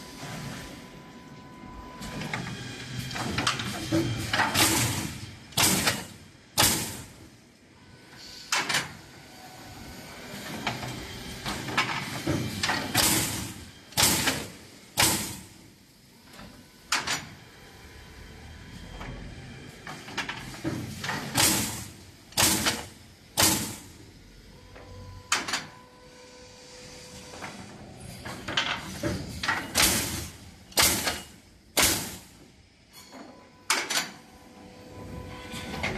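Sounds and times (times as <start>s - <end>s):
pneumatic nailers firing: 2.1s - 7.3s, 8.5s - 9.0s, 10.4s - 15.6s, 19.9s - 24.0s, 27.2s - 34.2s.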